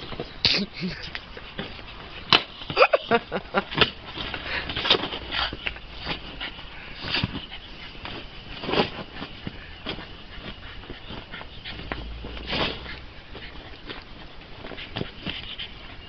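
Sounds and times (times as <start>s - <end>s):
vinyl ball scuffing and squeaking: 3.7s - 16.0s.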